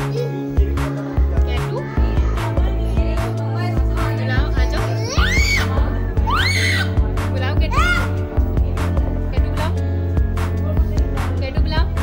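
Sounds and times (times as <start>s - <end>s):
music with low beat: 0.0s - 12.0s
high vocal cries: 5.0s - 7.0s.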